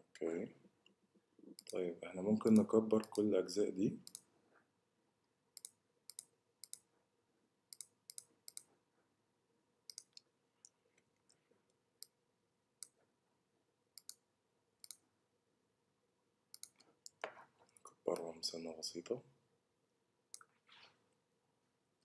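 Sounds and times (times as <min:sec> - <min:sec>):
computer mouse clicks: 0:01.6 - 0:01.8, 0:02.4 - 0:03.3, 0:04.0 - 0:04.3, 0:05.6 - 0:06.9, 0:07.7 - 0:08.7, 0:09.9 - 0:11.4, 0:14.0 - 0:14.2, 0:14.8 - 0:15.0, 0:16.5 - 0:18.3.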